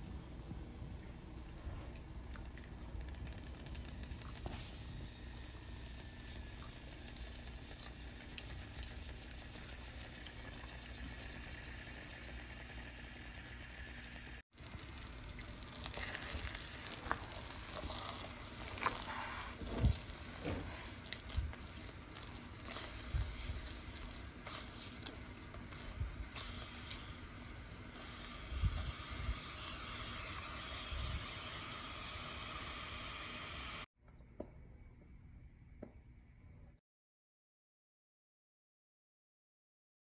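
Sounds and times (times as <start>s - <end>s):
rice mixture bubbling and sizzling: 0.0s - 33.9s
spatula scraping pot: 15.8s - 28.8s.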